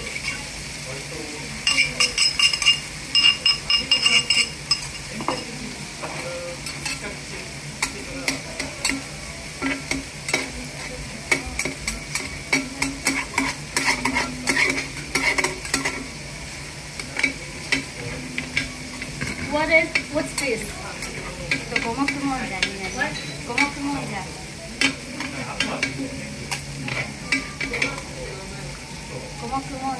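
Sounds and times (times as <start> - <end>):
food sizzling: 0.0 - 29.9
metal spatula scraping on griddle: 6.1 - 16.2, 16.9 - 23.8, 24.8 - 28.2.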